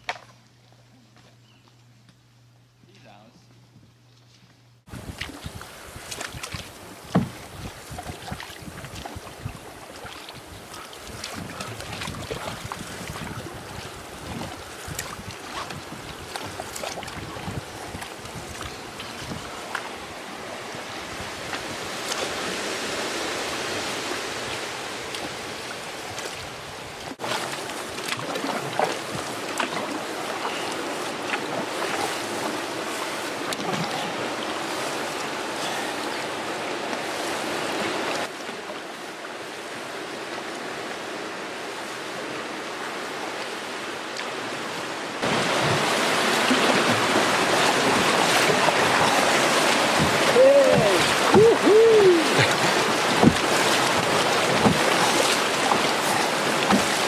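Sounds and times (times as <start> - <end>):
wind buffeting microphone: 4.9 - 19.7
rushing river water: 4.9 - 57.0.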